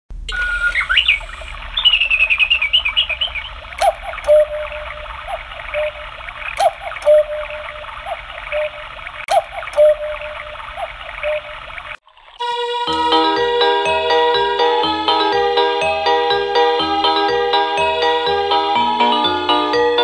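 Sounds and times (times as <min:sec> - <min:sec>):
recorded running water: 0:00.1 - 0:14.3
recorded birdsong: 0:00.2 - 0:12.0
electronic cuckoo clock call: 0:00.3 - 0:11.8.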